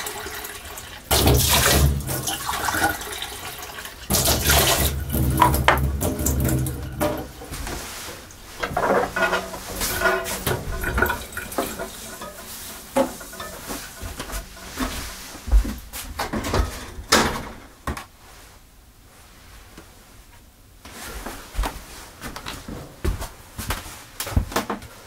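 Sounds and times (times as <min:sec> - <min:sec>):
dishes and pots knocking: 0:04.1 - 0:07.6, 0:08.6 - 0:15.1.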